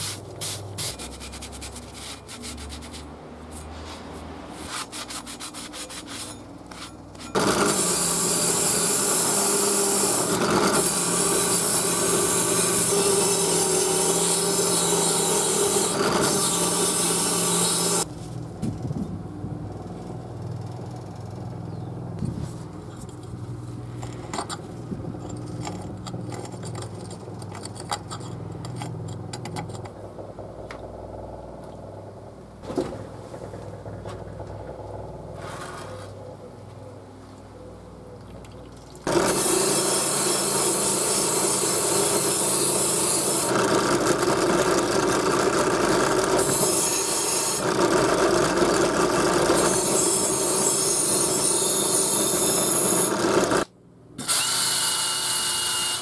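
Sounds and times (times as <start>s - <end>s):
belt grinder humming: 7.2s - 18.1s, 39.1s - 56.0s.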